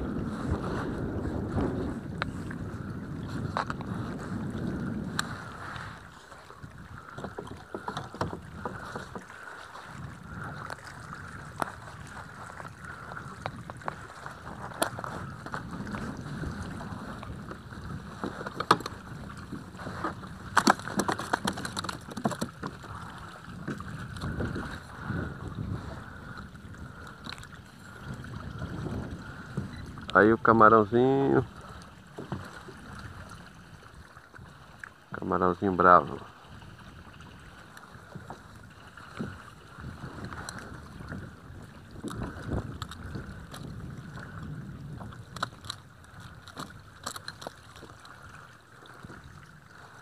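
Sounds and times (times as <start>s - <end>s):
wind rumble on microphone: 0.0s - 50.0s
handling clicks and knocks: 20.5s - 22.8s.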